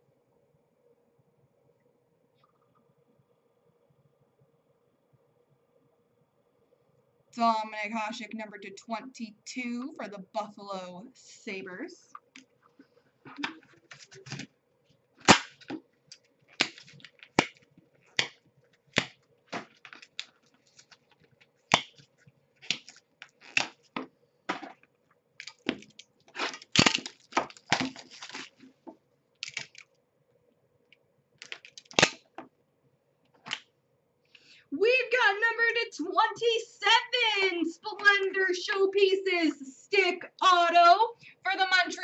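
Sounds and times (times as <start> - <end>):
faint steady hum: 0.0 - 42.0
cardboard boxes clicking and crackling: 25.5 - 28.7.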